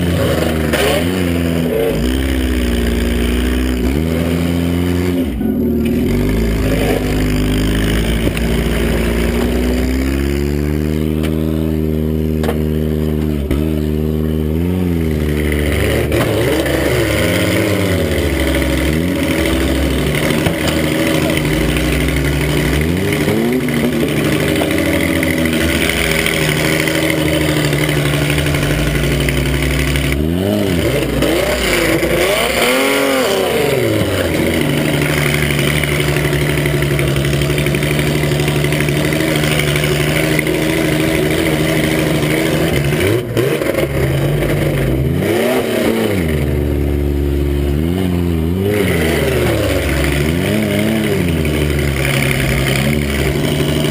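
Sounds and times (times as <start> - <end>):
truck engine revving: 0.0 - 53.9.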